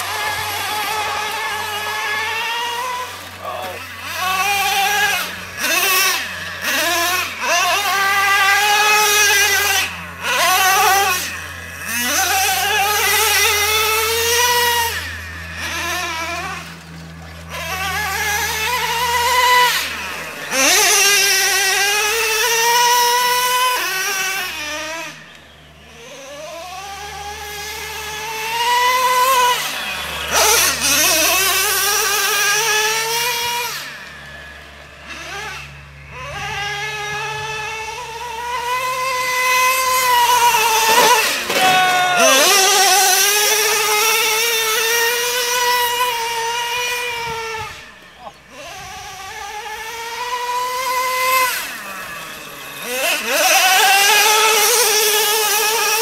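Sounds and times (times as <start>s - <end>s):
small engine revving hard: 0.0s - 56.0s.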